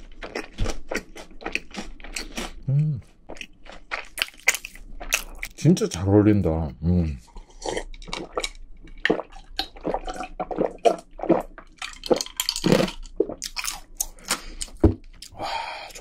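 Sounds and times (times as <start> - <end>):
person gulping drink: 0.2 - 3.1, 7.3 - 16.0.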